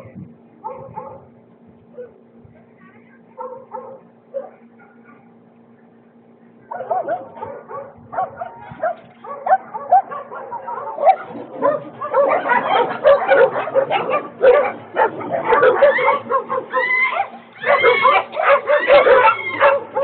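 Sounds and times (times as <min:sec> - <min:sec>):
dogs barking and yipping: 0:00.6 - 0:01.3, 0:03.4 - 0:05.3, 0:06.7 - 0:20.0.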